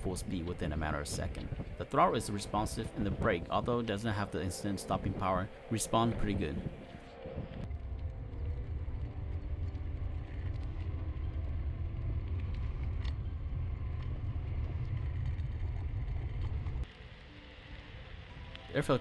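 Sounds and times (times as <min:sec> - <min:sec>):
wind on microphone: 0:00.0 - 0:16.9
tyres rumbling on asphalt: 0:07.7 - 0:16.9.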